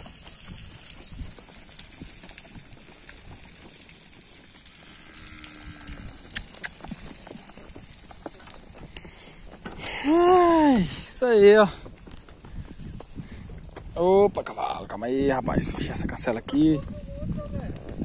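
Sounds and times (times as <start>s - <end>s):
hooves walking on dirt: 0.0s - 18.0s.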